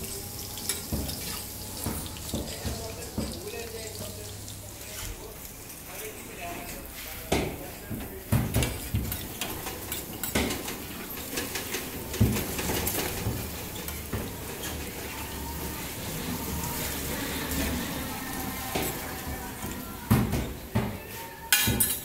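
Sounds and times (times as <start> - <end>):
patties sizzling in oil: 0.0 - 21.7
metal spatulas scraping griddle: 8.6 - 19.8.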